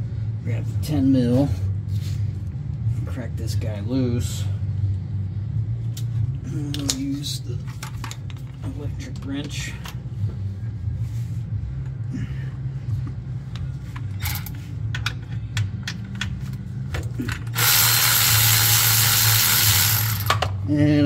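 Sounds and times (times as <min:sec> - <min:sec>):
steady low hum: 0:00.0 - 0:21.0
electric ratchet spinning: 0:17.5 - 0:20.5.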